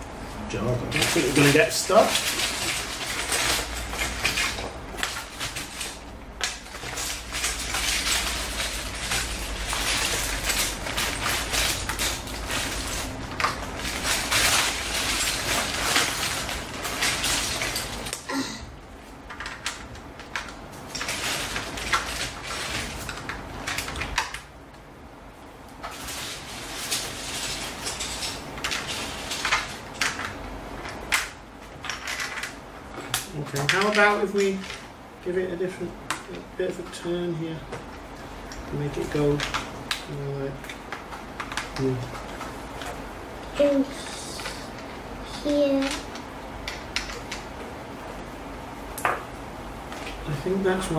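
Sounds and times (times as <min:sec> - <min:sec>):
plastic bricks rattling in a bag: 0:00.9 - 0:18.2, 0:19.3 - 0:24.4, 0:25.8 - 0:30.4.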